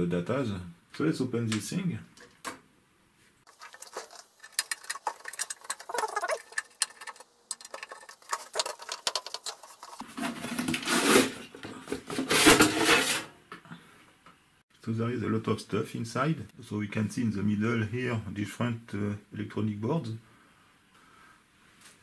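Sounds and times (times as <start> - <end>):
small metal clicks and rattles: 3.5 - 10.0
metal-on-metal scraping: 3.5 - 13.4.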